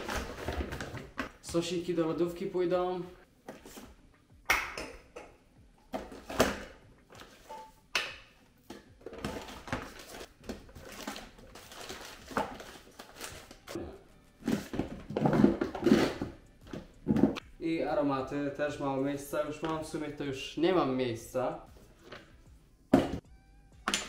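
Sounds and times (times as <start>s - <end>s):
rustling and shuffling: 3.4s - 4.1s.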